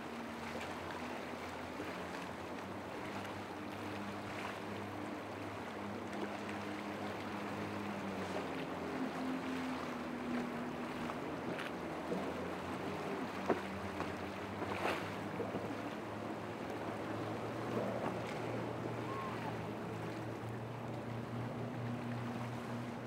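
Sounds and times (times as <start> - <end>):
outboard motor drone: 0.0 - 23.0
waves washing: 0.0 - 23.0
wind: 0.0 - 23.0.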